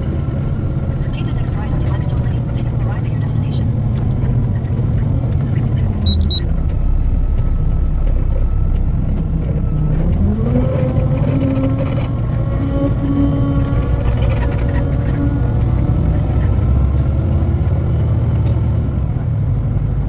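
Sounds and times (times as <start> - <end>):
truck engine: 3.7 - 20.0
brief high chirp: 6.1 - 6.4.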